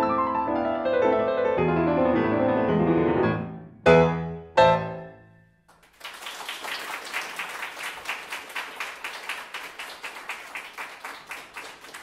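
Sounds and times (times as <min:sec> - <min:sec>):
audience clapping: 0:05.7 - 0:12.0.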